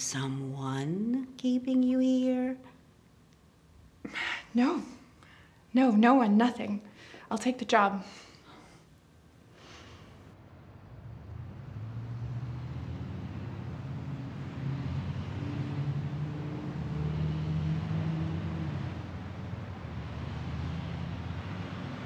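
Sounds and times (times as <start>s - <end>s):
road traffic hum: 10.2s - 22.0s
vehicle engine: 10.3s - 22.0s.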